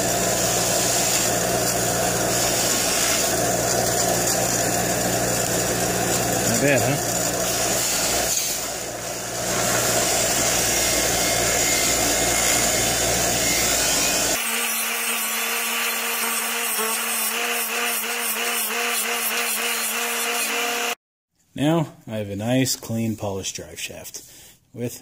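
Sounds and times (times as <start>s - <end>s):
wire wheel grinding metal: 0.0s - 14.4s.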